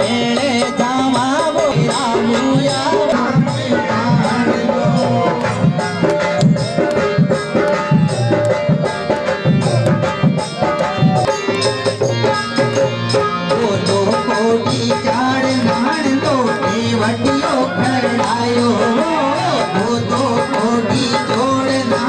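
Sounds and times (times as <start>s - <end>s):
frame drums beating: 0.0s - 22.0s
wavering melody line: 2.8s - 12.7s.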